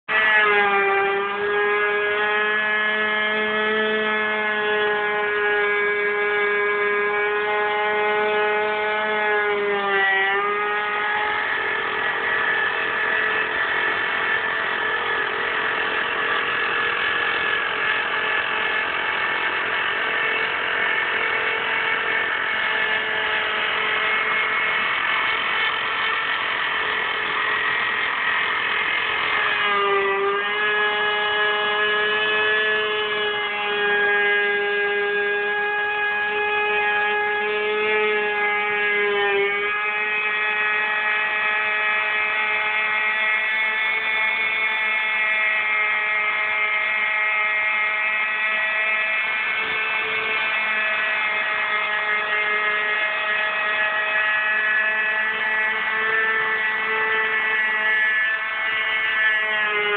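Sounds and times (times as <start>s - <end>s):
router spindle whining: 0.0s - 59.9s
bit milling wood: 0.1s - 59.9s.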